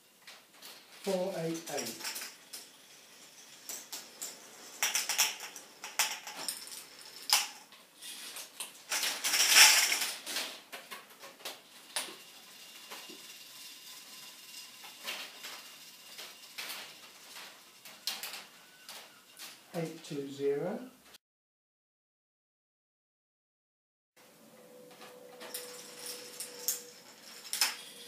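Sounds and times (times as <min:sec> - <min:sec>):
plastic parts and balls clattering: 0:00.2 - 0:19.7, 0:24.9 - 0:28.0.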